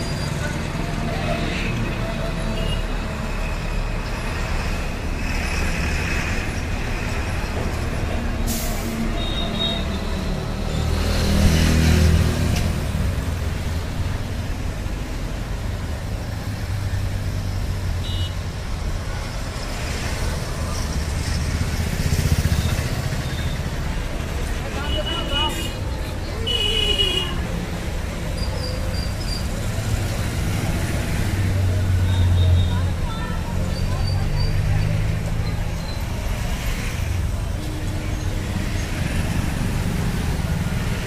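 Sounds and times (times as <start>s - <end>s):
motorcycles passing: 19.0s - 26.4s.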